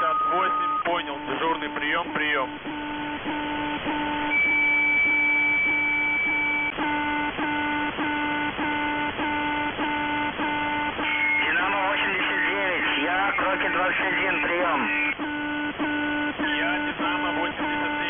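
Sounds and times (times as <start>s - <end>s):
buzzy multi-tone beep: 0.0s - 18.0s
steady high whistle: 4.3s - 6.7s.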